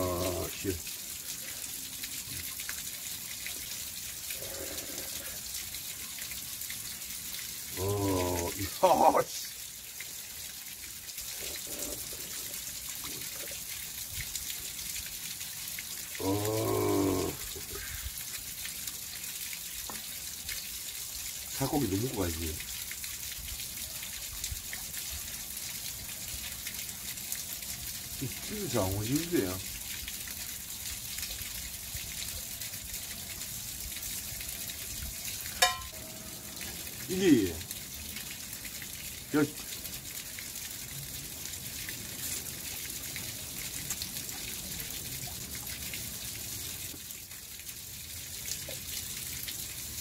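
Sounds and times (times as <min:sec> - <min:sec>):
stream water trickling: 0:00.0 - 0:50.0
man making short voiced sound: 0:07.8 - 0:09.5, 0:16.2 - 0:17.8, 0:37.1 - 0:37.6
sharp knock with ring: 0:35.6 - 0:36.0.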